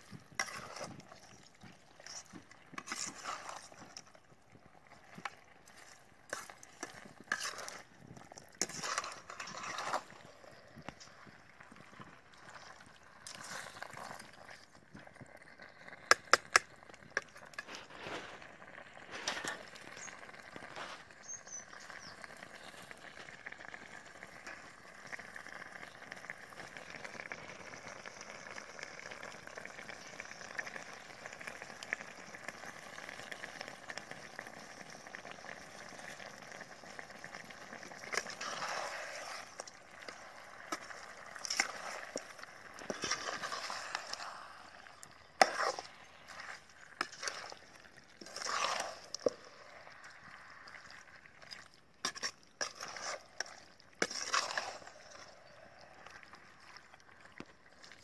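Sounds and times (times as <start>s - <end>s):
ladle scraping pan: 0.3s - 1.3s, 2.0s - 4.0s, 5.6s - 11.2s, 17.2s - 21.2s, 37.6s - 49.4s, 52.0s - 55.5s.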